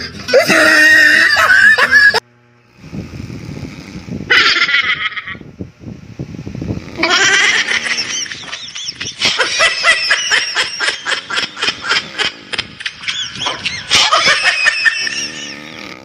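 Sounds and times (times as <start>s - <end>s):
high-pitched laughter: 0.0s - 2.2s, 4.3s - 5.4s, 7.0s - 15.8s.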